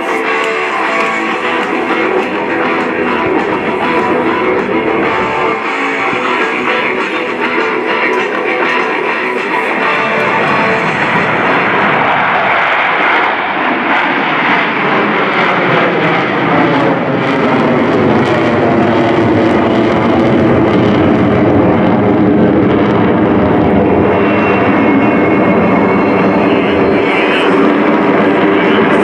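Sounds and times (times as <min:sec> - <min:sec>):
jet engines roaring overhead: 0:00.0 - 0:29.0.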